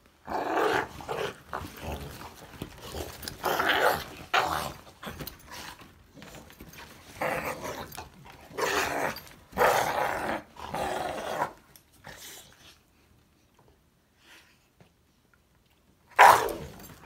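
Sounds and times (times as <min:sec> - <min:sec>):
dogs growling: 0:00.2 - 0:12.4.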